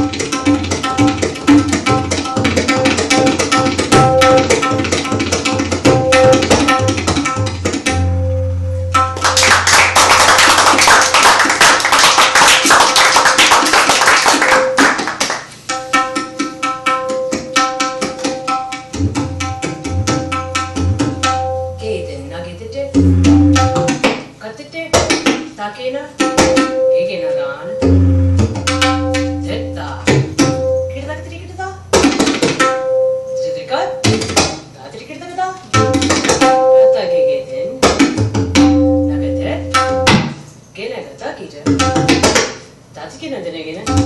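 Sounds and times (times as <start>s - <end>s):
tabla strokes: 0.0s - 11.4s, 14.6s - 21.8s, 22.9s - 24.3s, 26.2s - 27.0s, 27.8s - 30.9s, 31.9s - 33.2s, 34.0s - 34.6s, 35.7s - 36.8s, 37.8s - 40.4s, 41.7s - 42.6s.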